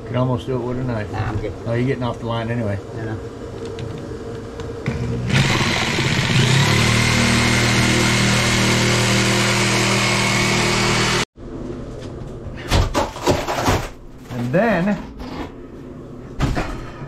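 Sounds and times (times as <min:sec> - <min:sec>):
reciprocating saw cutting wood: 0:04.9 - 0:11.3.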